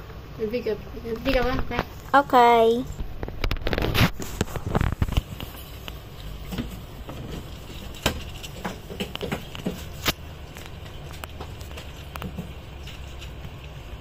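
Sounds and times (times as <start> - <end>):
hamster rummaging in food bowl: 3.5 - 14.0.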